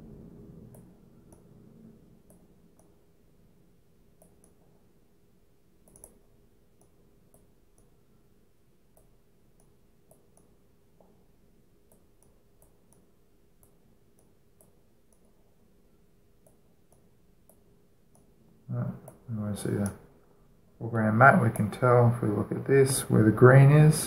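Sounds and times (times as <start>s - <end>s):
faint steady hum: 0.0s - 24.0s
computer mouse clicking: 0.7s - 1.5s, 2.2s - 3.0s, 4.2s - 4.7s, 5.8s - 8.0s, 9.0s - 11.1s, 11.9s - 15.4s, 16.4s - 18.3s.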